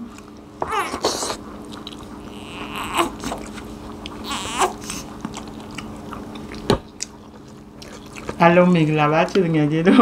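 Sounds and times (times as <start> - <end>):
people chewing: 0.0 - 8.4
steady low hum: 0.0 - 10.0
baby whimpering: 0.6 - 1.4, 2.2 - 3.6, 4.2 - 5.1.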